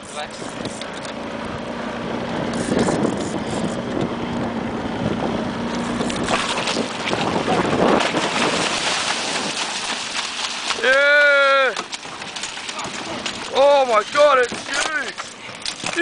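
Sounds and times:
boat engine humming: 0.0s - 16.0s
wind on microphone: 2.3s - 10.0s
water washing against hull: 5.0s - 16.0s
water splashing: 5.6s - 16.0s.

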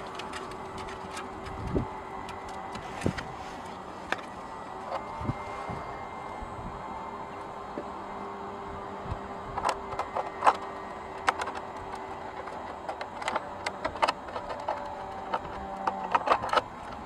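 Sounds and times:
low steady hum: 0.0s - 17.0s
plastic bottle clicks and creaks: 9.9s - 17.0s.

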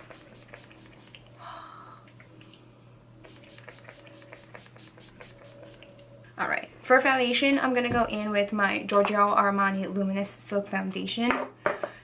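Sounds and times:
mist spray bottle hissing puffs: 0.0s - 1.2s, 3.2s - 5.9s.

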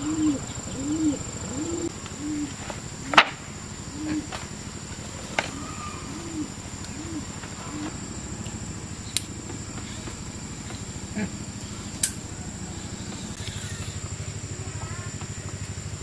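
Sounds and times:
high insect trill: 0.0s - 16.0s
low pulsing motor hum: 0.0s - 16.0s
bamboo poles clacking: 2.0s - 3.6s, 4.3s - 5.9s.

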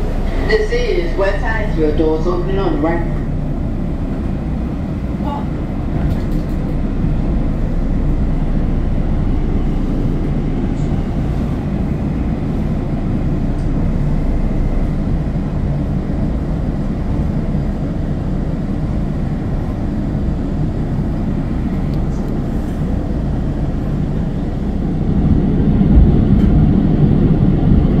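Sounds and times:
train rumbling inside car: 0.0s - 28.0s.

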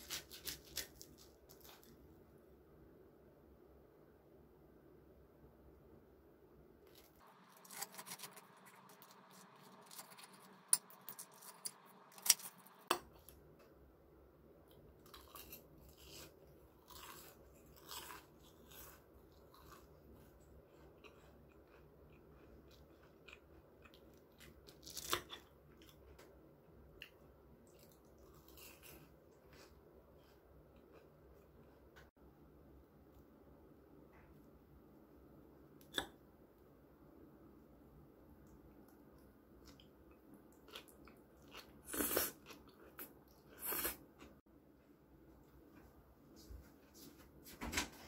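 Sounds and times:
crunchy bites and chewing: 0.0s - 1.9s, 6.9s - 12.9s, 15.0s - 26.1s, 40.6s - 44.0s
fried crust crackling: 0.0s - 1.9s, 6.9s - 12.9s.

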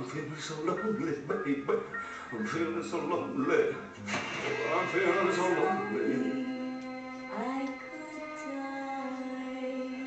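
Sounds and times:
person singing song on television: 0.0s - 10.0s.

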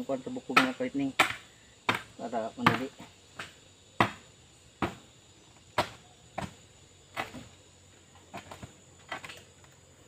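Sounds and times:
iron bar knocking bamboo: 0.5s - 4.2s.

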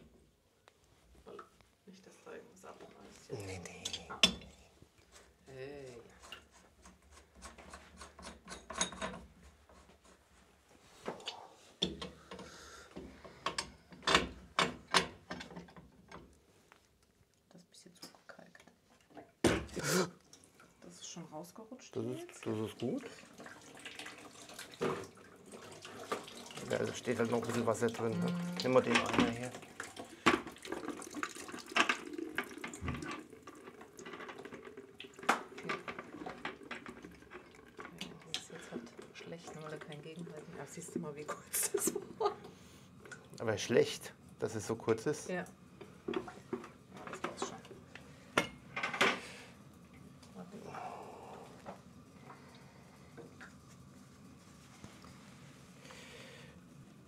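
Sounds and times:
tool scraping and clicking on fittings: 6.1s - 9.9s
water splashing into a bucket: 22.4s - 40.1s.

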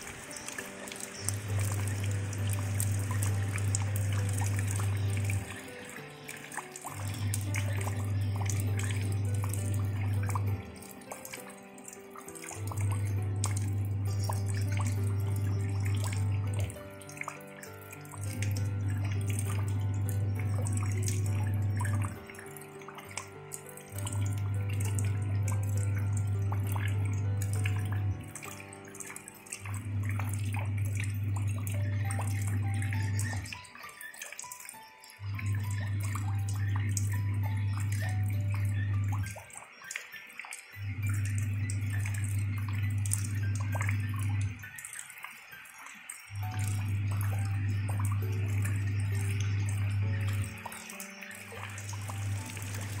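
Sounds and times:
calm background music: 0.0s - 53.0s
rain splashing into puddle: 0.0s - 53.0s
water trickling and dripping: 0.0s - 53.0s.

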